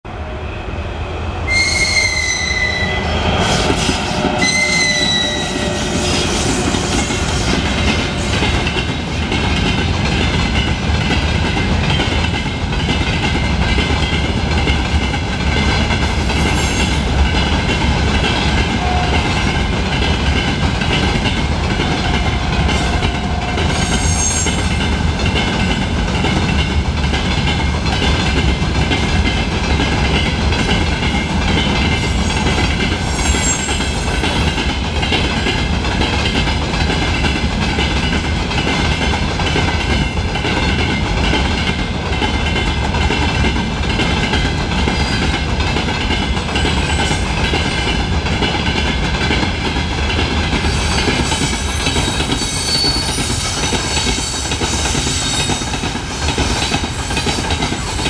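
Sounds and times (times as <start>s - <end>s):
train rumble: 0.0s - 58.0s
high-pitched wheel squeals: 1.5s - 7.1s, 23.7s - 24.6s, 52.4s - 53.4s
train wheels clattering over rail joints: 5.8s - 58.0s.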